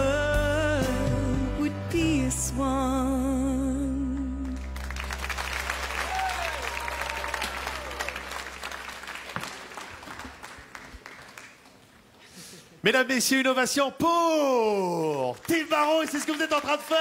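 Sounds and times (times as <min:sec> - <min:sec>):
person singing with vibrato: 0:00.0 - 0:04.8
audience applause: 0:04.7 - 0:12.1, 0:15.2 - 0:17.0.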